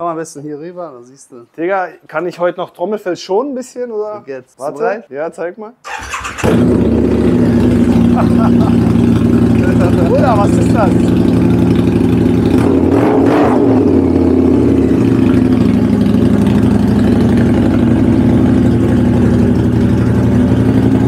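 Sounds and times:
motorcycle engine idling: 5.9 - 12.9, 13.8 - 21.0.

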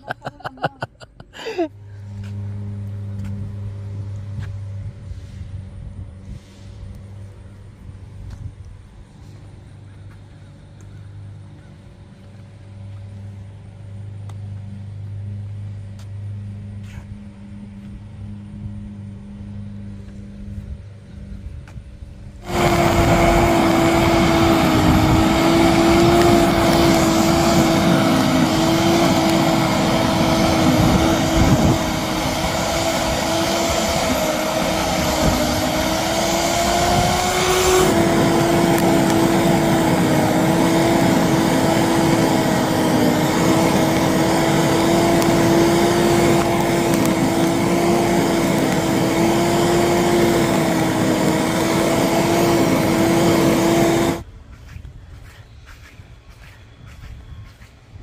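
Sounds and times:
small motor humming: 22.2 - 57.7
rushing noise: 22.4 - 54.2.

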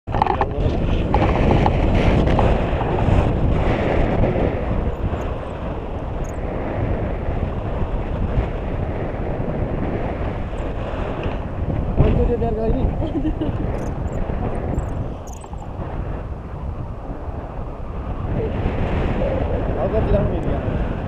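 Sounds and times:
wind rushing over microphone: 0.1 - 21.0.

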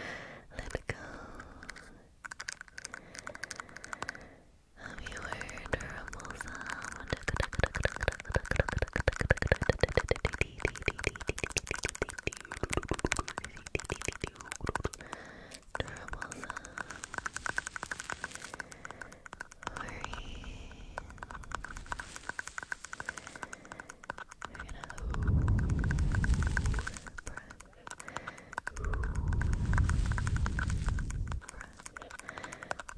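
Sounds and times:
fingers tapping on microphone: 0.6 - 4.2, 4.8 - 32.9
microphone handling rumble: 25.2 - 27.0, 29.1 - 31.4.

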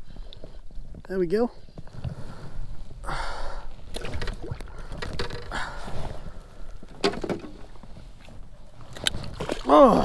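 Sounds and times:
fish thrashing in water: 3.8 - 5.8.

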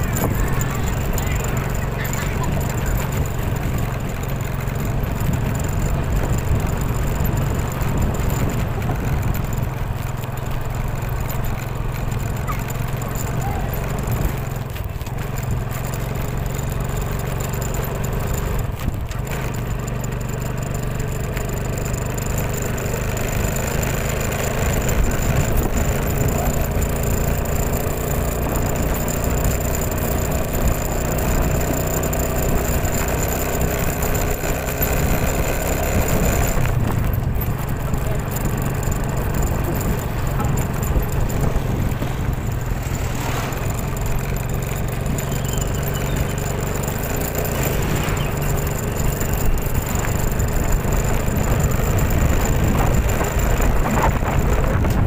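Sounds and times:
engine humming: 0.0 - 55.0.

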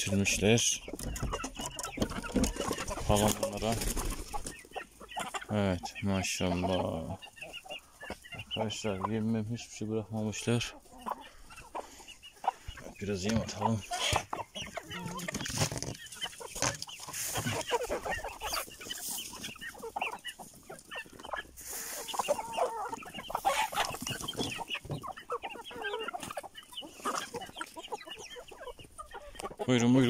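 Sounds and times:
hens and rooster clucking: 0.0 - 30.0
rustling: 14.0 - 25.4.

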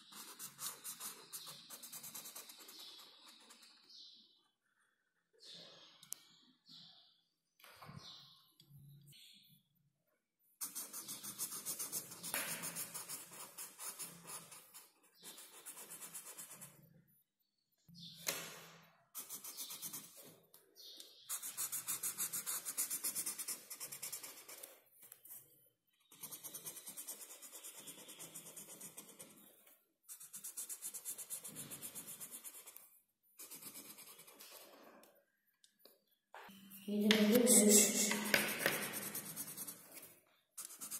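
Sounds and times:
marker scribbling on paper: 0.0 - 3.9, 10.6 - 16.8, 19.1 - 20.4, 21.2 - 25.4, 26.1 - 34.9, 37.0 - 40.9.

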